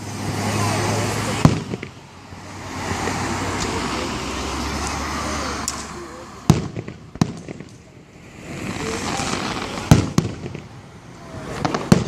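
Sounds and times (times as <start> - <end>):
firework bangs: 0.0 - 12.0
firework hiss: 0.0 - 12.0
faint firework cracks: 1.3 - 2.0, 5.6 - 12.0.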